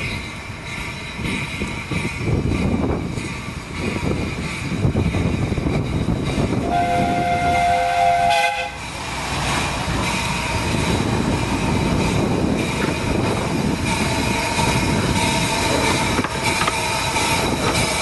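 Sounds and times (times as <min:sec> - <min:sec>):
train rumbling on track: 0:00.0 - 0:18.0
steam locomotive whistle: 0:06.6 - 0:08.8.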